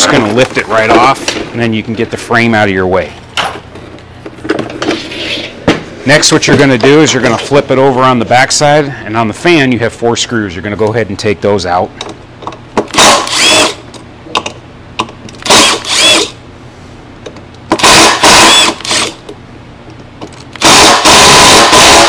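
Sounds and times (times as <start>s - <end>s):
cordless power driver running: 12.9s - 13.8s, 15.4s - 16.4s, 17.8s - 19.2s, 20.6s - 22.0s.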